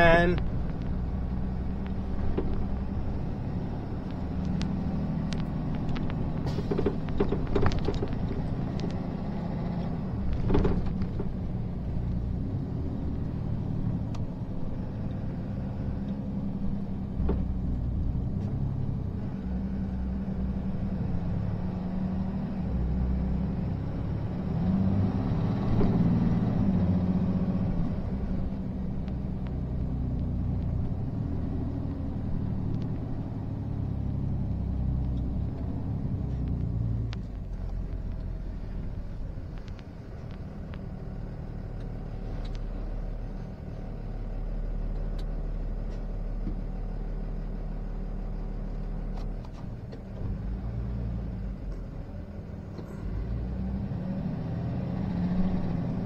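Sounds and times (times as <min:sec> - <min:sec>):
road rumble: 0:00.0 - 0:56.0
truck engine drone: 0:00.0 - 0:56.0.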